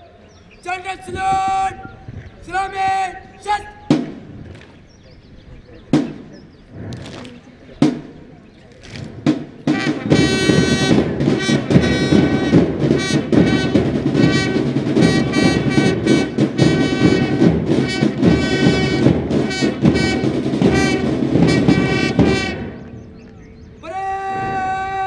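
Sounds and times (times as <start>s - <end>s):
military brass band march: 8.8s - 23.2s.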